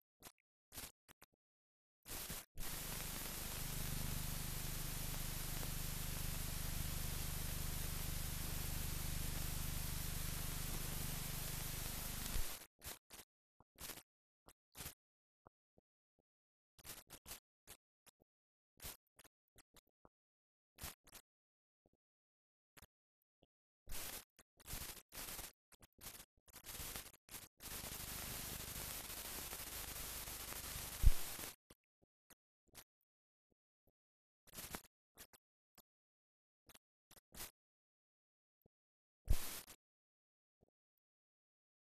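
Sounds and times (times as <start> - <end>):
low hum: 2.6 - 12.4
film hiss: 2.6 - 12.6, 27.6 - 31.3.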